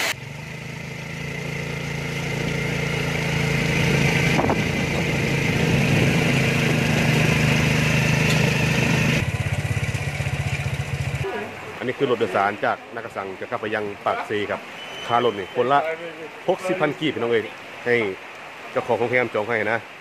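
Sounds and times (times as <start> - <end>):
vehicle engine running: 0.0 - 11.4.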